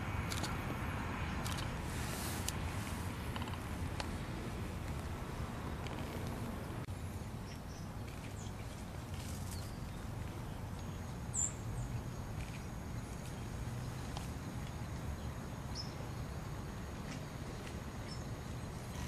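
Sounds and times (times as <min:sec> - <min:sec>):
small birds chirping: 0:06.9 - 0:16.3, 0:17.5 - 0:19.0.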